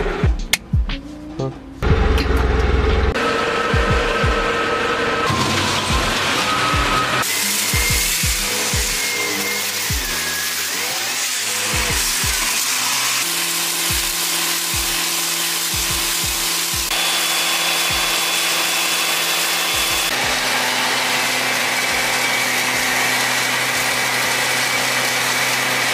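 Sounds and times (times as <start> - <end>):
sustained electronic tones: 1.2 - 10.5
deep bass kicks: 1.8 - 3.2, 3.8 - 4.5.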